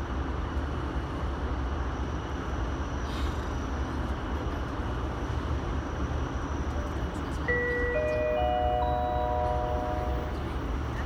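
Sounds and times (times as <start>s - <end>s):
train cabin low rumble: 0.0s - 11.0s
faint high tone: 7.5s - 10.4s.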